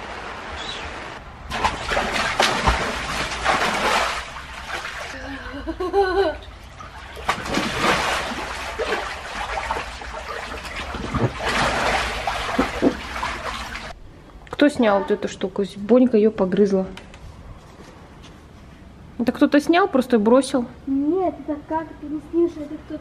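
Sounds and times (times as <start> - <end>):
water splashing in paddling pool: 0.0 - 5.5, 6.4 - 14.0.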